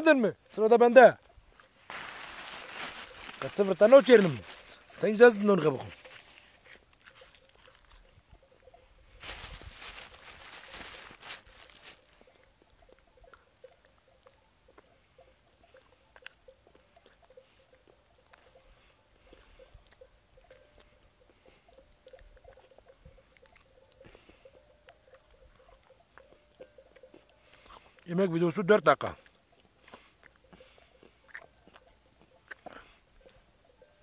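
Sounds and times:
chewing: 5.6s - 8.8s, 9.5s - 28.1s, 29.0s - 34.0s
person eating by hand: 5.7s - 8.4s, 10.8s - 28.0s, 29.2s - 33.6s.

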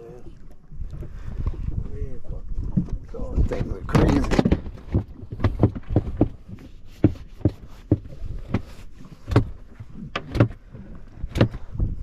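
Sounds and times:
knocks and slaps on boat hull: 2.7s - 10.6s, 11.2s - 12.0s.

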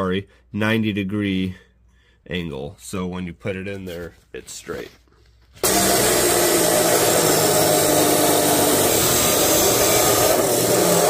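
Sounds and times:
chop saw grinding through steel: 5.6s - 11.0s.

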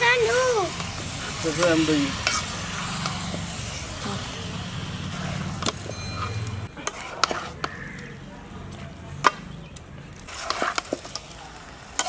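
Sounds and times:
food sizzling in a pot: 0.0s - 7.6s, 10.2s - 12.0s.

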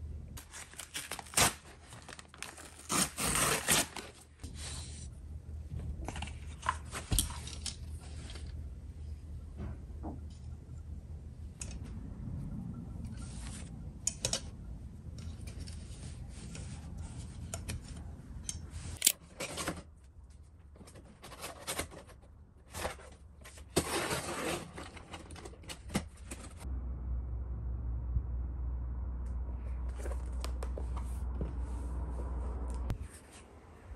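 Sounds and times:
low steady hum: 0.0s - 24.1s, 24.8s - 33.9s
box cutter scraping packing tape: 2.5s - 4.2s.

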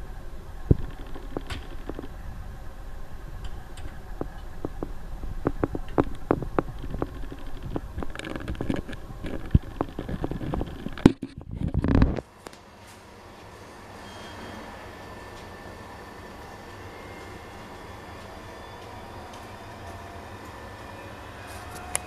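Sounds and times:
low rumble in train cab: 0.0s - 22.0s.

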